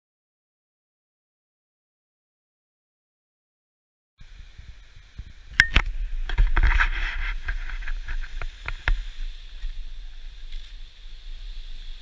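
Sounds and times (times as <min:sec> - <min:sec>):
steady hiss: 0:04.2 - 0:12.0
wind rumbling on microphone: 0:04.2 - 0:12.0.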